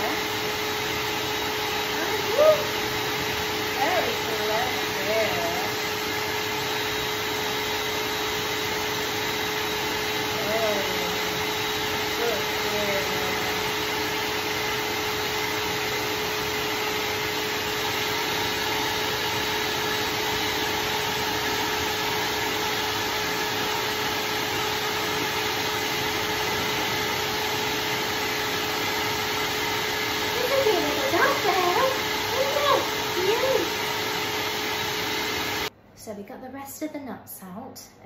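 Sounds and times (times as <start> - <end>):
electric blower motor whirring: 0.0 - 35.7.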